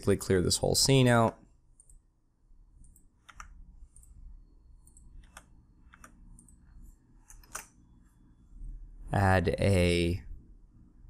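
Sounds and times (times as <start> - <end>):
mouse and keyboard clicks: 2.8 - 4.2, 4.8 - 6.6, 7.2 - 7.8.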